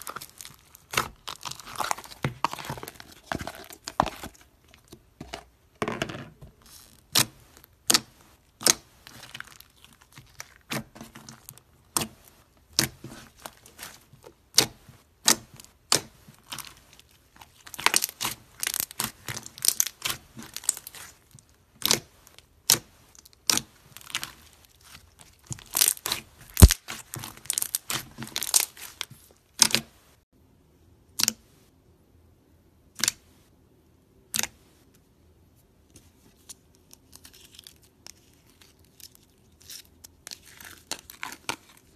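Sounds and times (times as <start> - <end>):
slime popping and crackling: 0.0 - 4.3, 12.7 - 21.2, 21.8 - 29.8.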